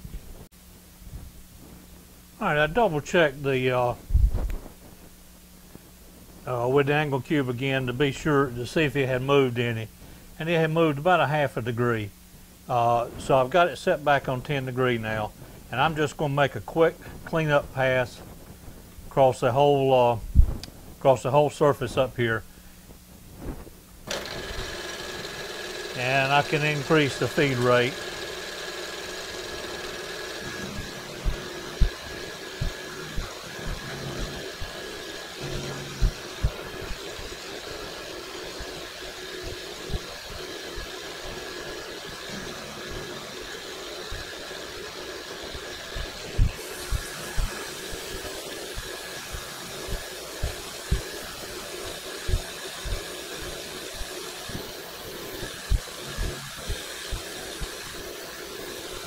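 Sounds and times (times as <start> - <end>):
milling machine spindle whine: 24.1 - 59.0.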